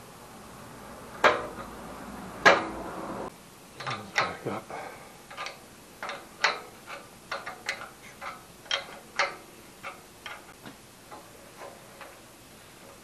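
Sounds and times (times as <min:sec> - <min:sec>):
sharp metallic clicks: 0:05.3 - 0:10.6.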